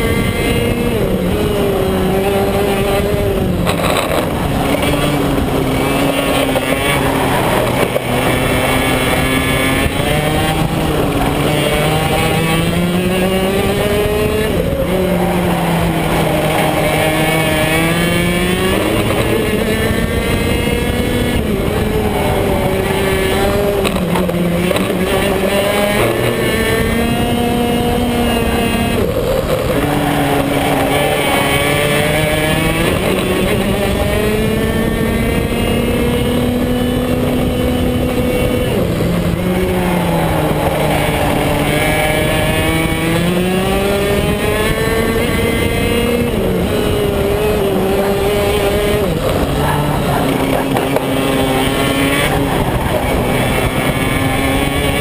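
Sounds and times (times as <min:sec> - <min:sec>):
kart engine at racing speed: 0:00.0 - 0:55.0.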